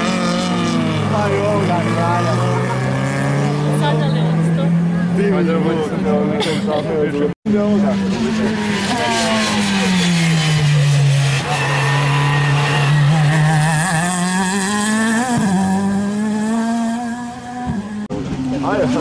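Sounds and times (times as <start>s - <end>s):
race car engine passing by: 7.5s - 19.0s.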